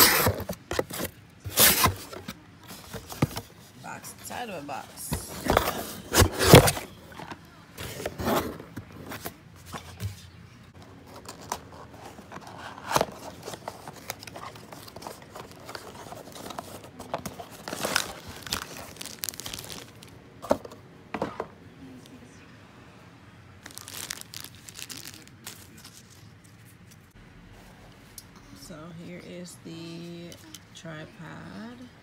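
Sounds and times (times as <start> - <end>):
cardboard box being opened: 0.0 - 3.5, 5.1 - 10.0, 10.9 - 19.9.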